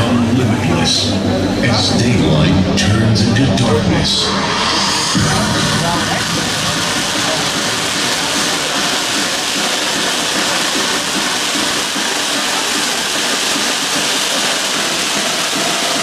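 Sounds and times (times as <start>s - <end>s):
firework fountains hissing: 4.2s - 16.0s.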